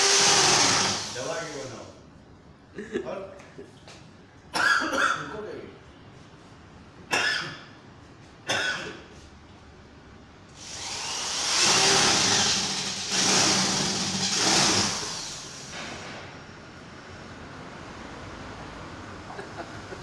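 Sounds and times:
motor running loudly: 10.6s - 15.4s.

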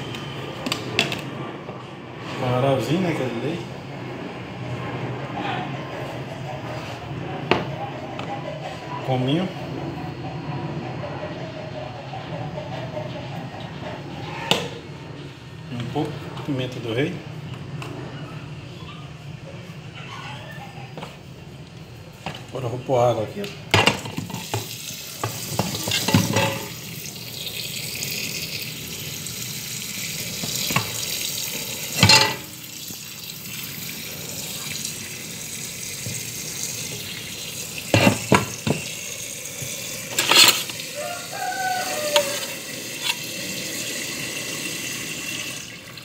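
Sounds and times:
tap water filling a pot: 23.8s - 46.0s.

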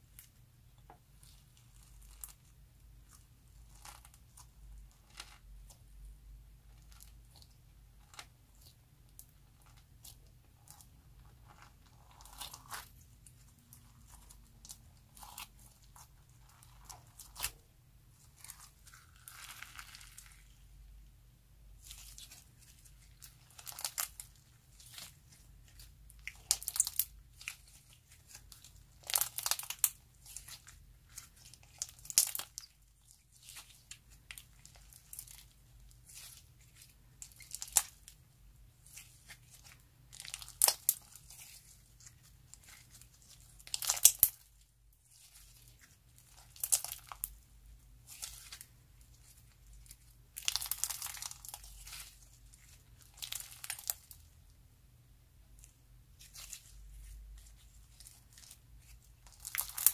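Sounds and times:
slime crackling when squeezed: 21.8s - 36.4s, 38.8s - 44.5s, 45.1s - 47.3s, 49.8s - 54.2s, 59.2s - 59.9s.

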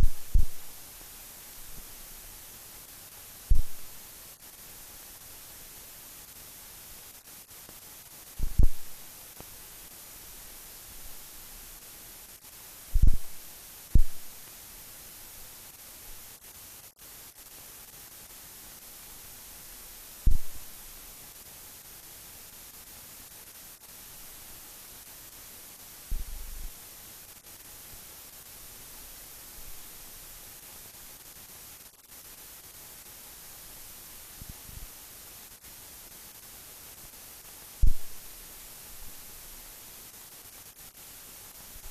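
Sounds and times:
short low thumps: 0.0s - 0.7s, 3.5s - 3.9s, 8.4s - 9.0s, 13.0s - 13.4s, 14.0s - 14.3s, 20.3s - 20.7s, 26.1s - 26.7s, 37.8s - 38.2s
steady hiss: 0.0s - 41.9s.

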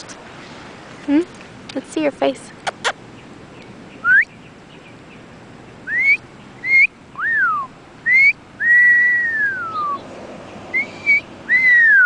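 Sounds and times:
person whistling: 5.9s - 10.0s, 10.8s - 12.0s.

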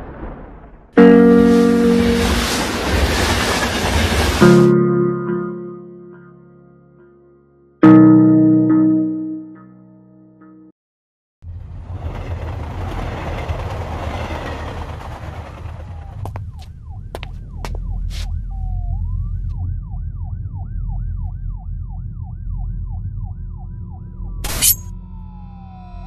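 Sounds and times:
rushing noise: 1.0s - 4.6s
police siren wailing and yelping: 17.7s - 22.0s, 25.0s - 26.0s.

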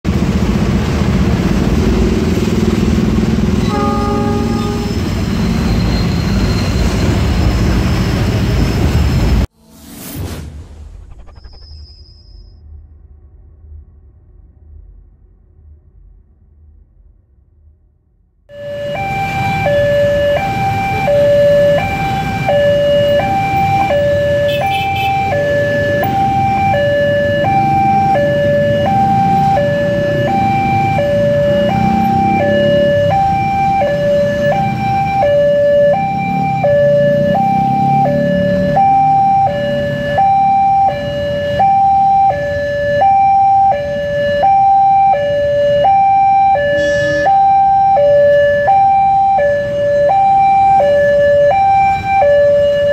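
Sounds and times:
road traffic rumble: 0.0s - 10.4s, 18.5s - 52.9s
motorcycles: 0.1s - 7.6s, 18.8s - 52.9s
level crossing two-tone alarm: 18.5s - 52.9s.

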